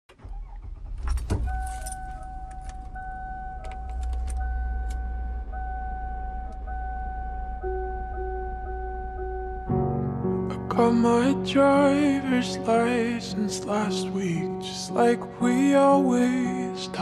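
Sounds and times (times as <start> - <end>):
low engine rumble: 0.1 - 9.8
low repeating tone: 0.4 - 13.2
car warning chime dinging: 1.3 - 9.7.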